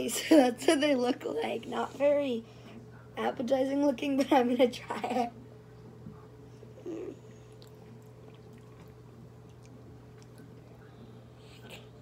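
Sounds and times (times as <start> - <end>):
steady low hum: 0.0 - 12.0
faint chewing: 6.6 - 12.0.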